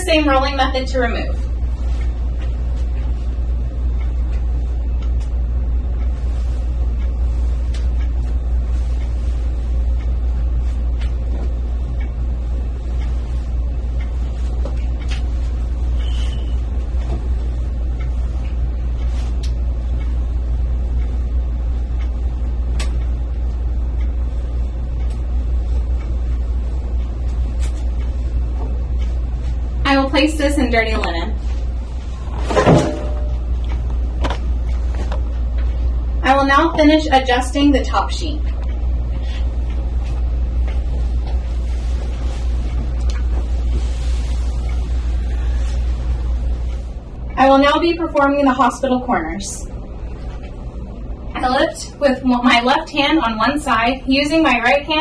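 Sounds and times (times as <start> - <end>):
steady low rumble: 0.0 - 55.0
bed linen rustling: 6.0 - 16.0, 16.6 - 19.9, 39.2 - 47.0.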